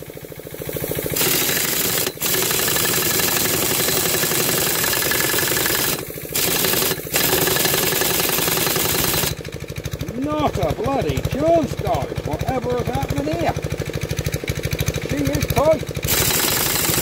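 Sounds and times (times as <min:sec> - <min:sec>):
air impact wrench hammering: 0:00.0 - 0:17.0.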